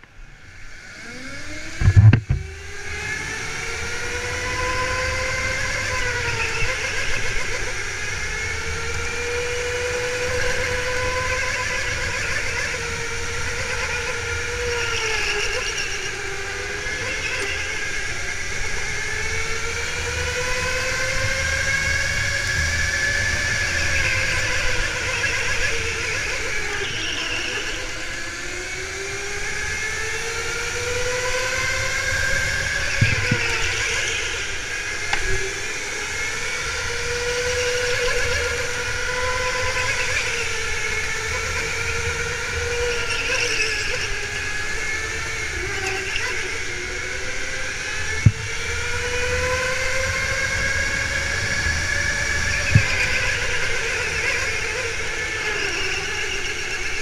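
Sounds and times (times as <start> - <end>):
go-kart motor whining: 0.0 - 57.0
sharp knocks: 1.8 - 2.5.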